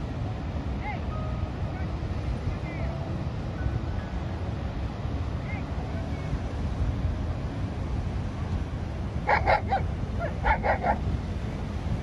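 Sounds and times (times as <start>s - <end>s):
surf and wind rumble: 0.0s - 12.0s
small dog yipping: 9.3s - 11.0s.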